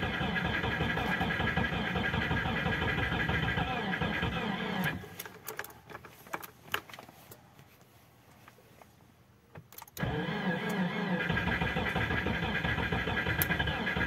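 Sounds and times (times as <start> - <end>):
starter cranking car engine: 0.0 - 5.0, 10.0 - 14.0.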